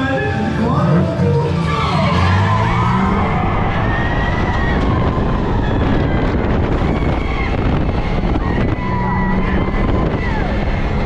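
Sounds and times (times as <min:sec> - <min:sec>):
ride car rumbling on track: 0:00.0 - 0:11.0
wind buffeting microphone: 0:03.0 - 0:11.0.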